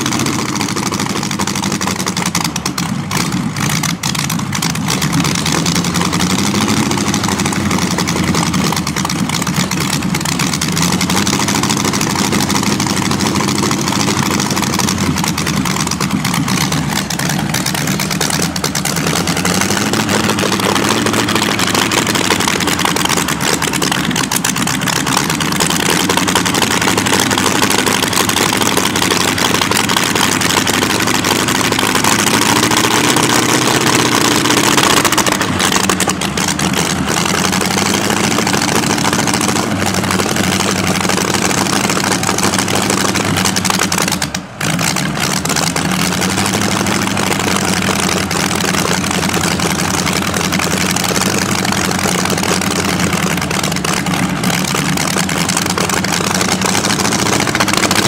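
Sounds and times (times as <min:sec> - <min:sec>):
engine idling loudly: 0:00.0 - 0:58.0.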